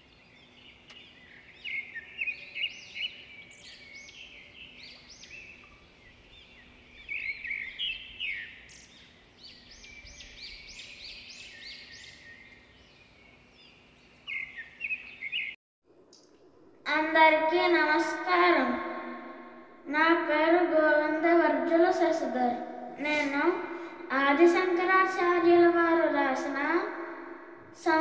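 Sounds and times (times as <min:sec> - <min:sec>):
birds chirping and singing: 0:00.0 - 0:15.6.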